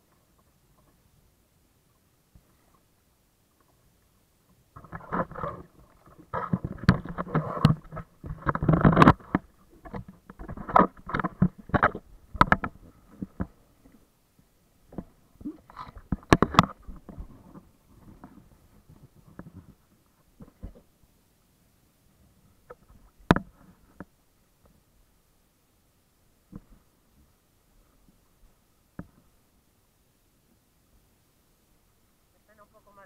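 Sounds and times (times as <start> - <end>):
water splashing: 4.7 - 14.1.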